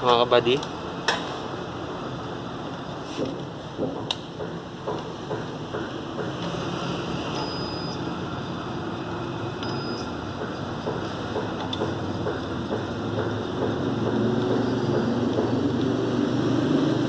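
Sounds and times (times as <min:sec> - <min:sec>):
steady mechanical hum: 0:00.0 - 0:17.0
short high-pitched beeps: 0:07.3 - 0:08.6, 0:09.6 - 0:10.6, 0:14.5 - 0:15.2.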